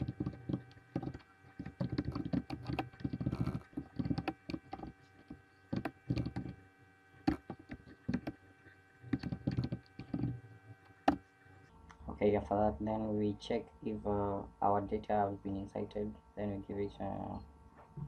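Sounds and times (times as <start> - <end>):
keyboard typing clicks: 0.0 - 6.6, 7.2 - 8.4, 9.1 - 10.4
faint steady hum: 0.0 - 18.0.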